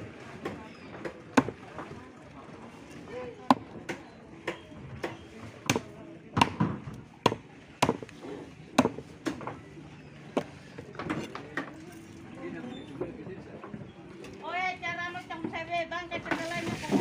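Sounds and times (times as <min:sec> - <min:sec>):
machete chopping on wooden block: 0:01.4 - 0:01.6, 0:03.5 - 0:08.1, 0:08.8 - 0:09.4.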